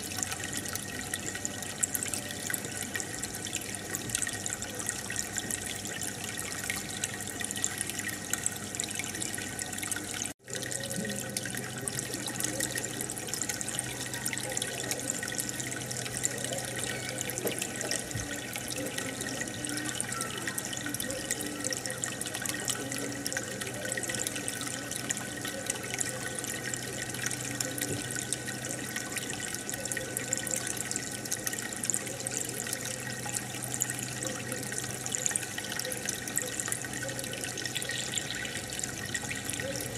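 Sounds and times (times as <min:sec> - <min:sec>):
aquarium water bubbling: 0:00.0 - 0:39.9.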